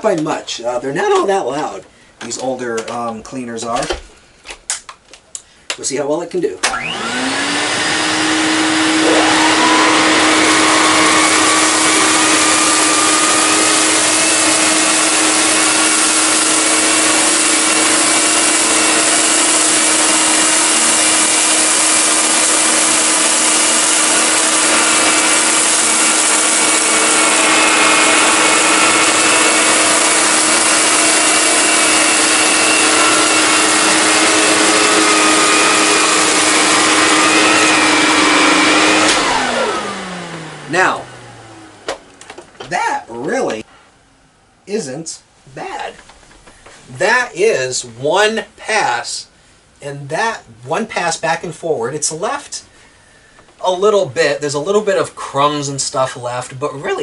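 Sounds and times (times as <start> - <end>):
vacuum motor winding down: 6.6 - 43.6
vacuum cleaner whining: 6.6 - 43.7.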